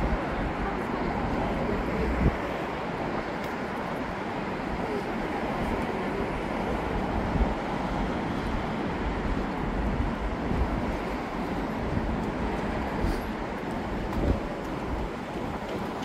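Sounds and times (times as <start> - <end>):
city traffic: 0.0 - 16.0
wind on microphone: 0.0 - 16.0.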